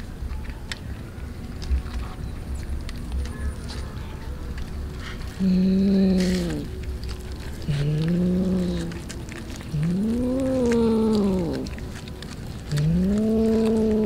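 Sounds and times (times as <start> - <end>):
cat yowling: 9.7 - 11.8, 12.7 - 14.0.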